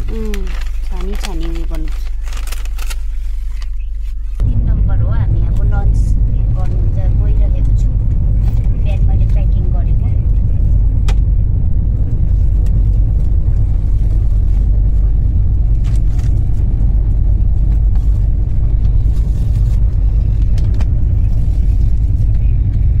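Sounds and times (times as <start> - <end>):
plastic bags rustling: 0.0 - 4.2
train rumbling: 0.0 - 23.0.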